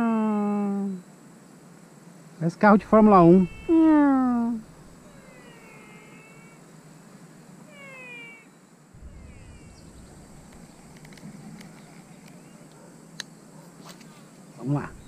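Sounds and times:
animal whining calls: 3.1 - 6.7, 7.6 - 12.9
faint ticks: 10.0 - 14.2.

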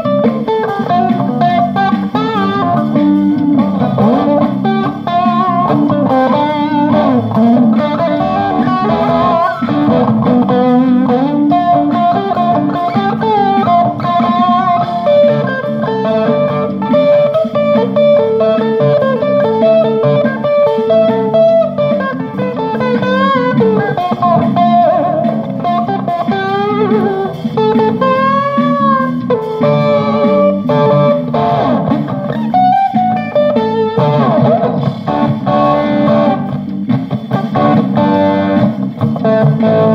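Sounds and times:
guitar jam: 0.0 - 39.9.

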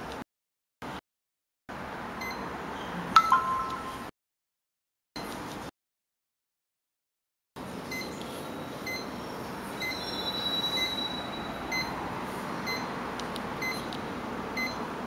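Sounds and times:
longer high tone: 3.2 - 4.1
short electronic beep: 3.2 - 4.1.

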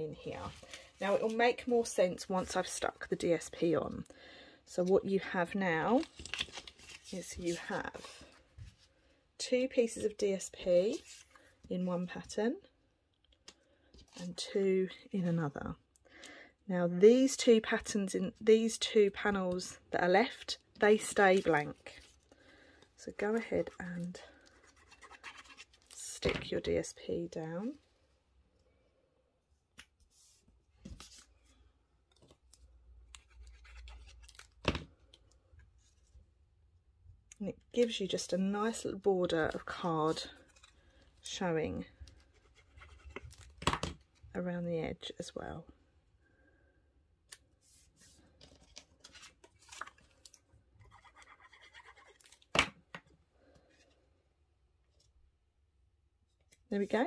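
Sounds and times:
paper rustling and scratching: 6.0 - 8.8, 23.6 - 26.0, 32.1 - 34.5, 47.6 - 52.4
paper rustling and rubbing: 24.4 - 26.0.

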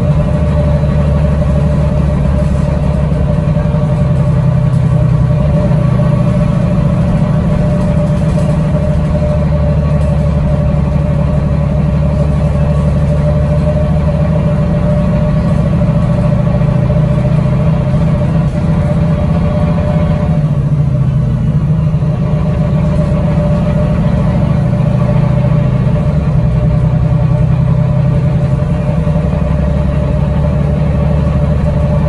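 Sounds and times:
bus engine drone: 0.0 - 32.0
steady whine: 0.0 - 32.0.

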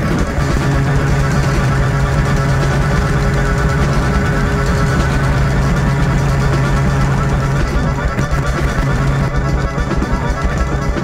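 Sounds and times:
experimental electronic music: 0.0 - 11.0.

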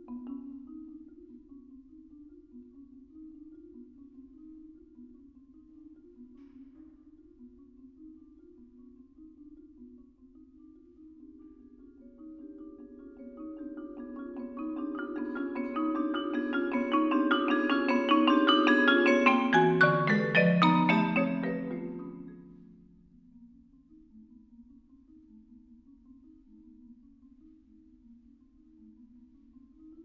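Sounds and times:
marimba playing low notes: 12.1 - 23.0
vibraphone notes ringing: 12.2 - 22.9.

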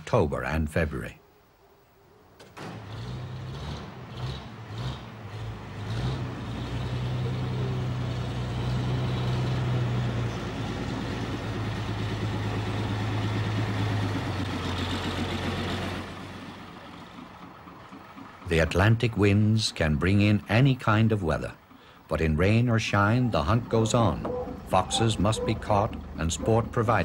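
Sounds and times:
lorry engine running: 2.7 - 27.0
engine cranking on starter: 12.2 - 22.1.

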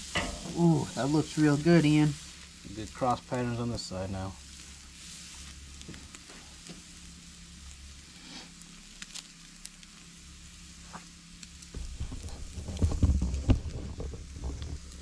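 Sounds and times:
steak sizzling on grill: 0.0 - 12.0
low rumbling: 11.6 - 15.0
loud bumps and knocks: 11.7 - 15.0.

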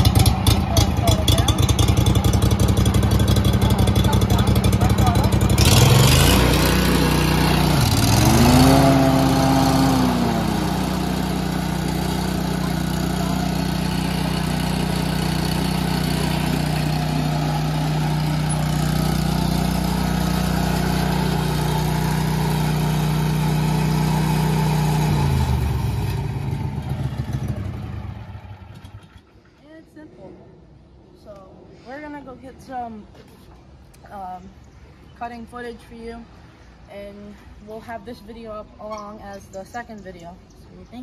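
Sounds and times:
lawn mower engine running: 0.0 - 29.4.

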